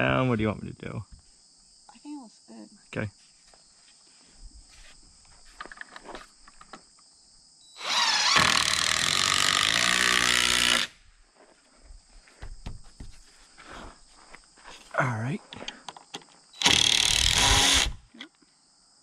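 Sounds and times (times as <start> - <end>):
impact driver driving screw: 7.8 - 10.9, 16.6 - 18.0
faint handling knocks: 12.2 - 13.4.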